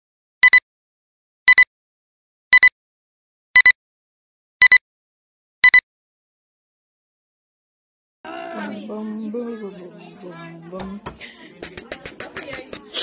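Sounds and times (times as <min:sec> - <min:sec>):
short double beep: 0:00.4 - 0:00.6, 0:01.5 - 0:01.7, 0:02.5 - 0:02.7, 0:03.6 - 0:03.8, 0:05.6 - 0:05.8.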